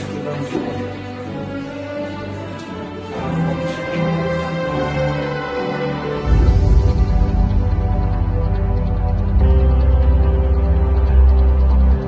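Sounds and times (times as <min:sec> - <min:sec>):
held chords over deep bass: 0:04.4 - 0:12.0.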